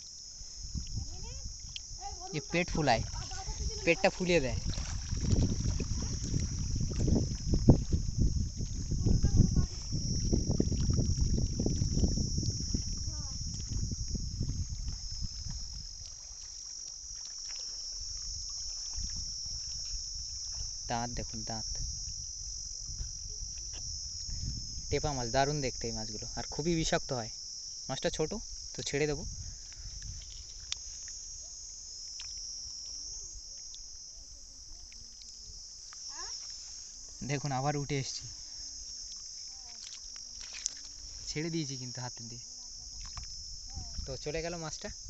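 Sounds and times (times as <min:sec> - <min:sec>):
low rumble on microphone: 0:00.0 - 0:16.6, 0:18.0 - 0:27.1, 0:28.4 - 0:31.5, 0:42.4 - 0:45.0
high-pitched insect drone: 0:00.0 - 0:45.0.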